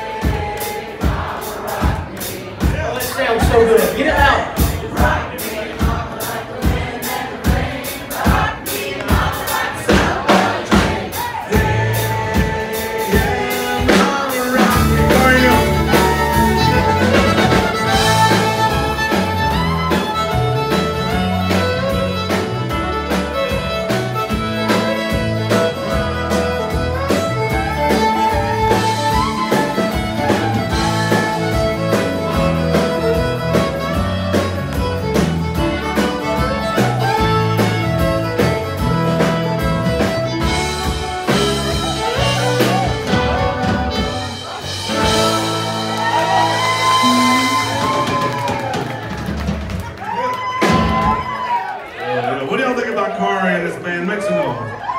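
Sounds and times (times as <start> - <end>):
country band playing: 0.0 - 54.9
heavy bass: 9.9 - 49.8
fiddle playing lead: 11.5 - 50.1.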